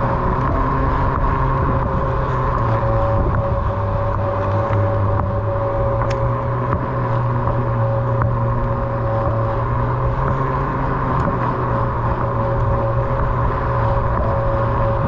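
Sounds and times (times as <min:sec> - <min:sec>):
electric motor humming: 0:00.0 - 0:15.0.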